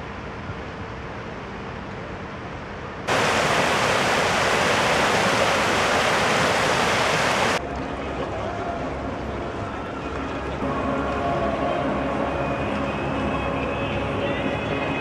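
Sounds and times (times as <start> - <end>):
outdoor background noise: 0.0 - 15.0
stream rushing over rocks: 3.1 - 7.6.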